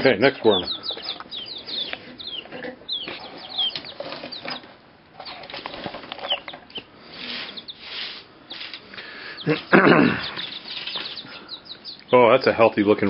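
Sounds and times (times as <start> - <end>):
chicks peeping: 0.0 - 13.0
rustling and scratching in hay: 0.4 - 8.9.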